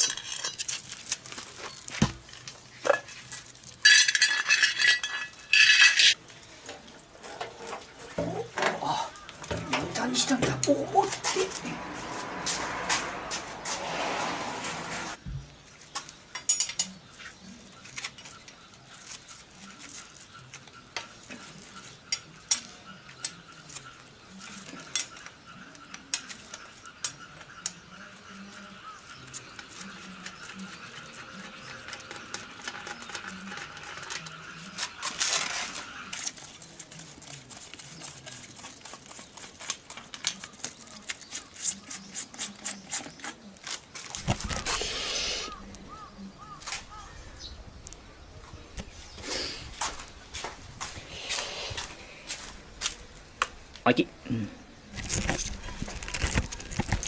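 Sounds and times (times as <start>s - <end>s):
spanner clinking on metal: 3.8s - 6.2s.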